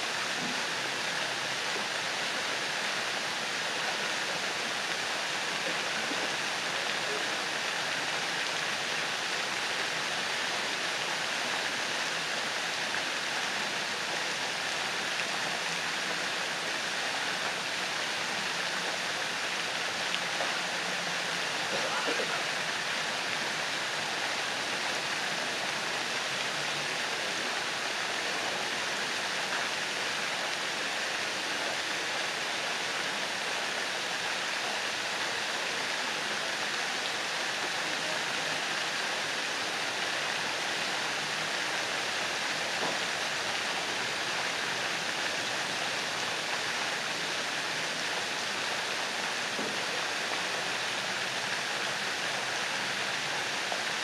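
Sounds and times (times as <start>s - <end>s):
fountain water splashing: 0.0s - 54.0s.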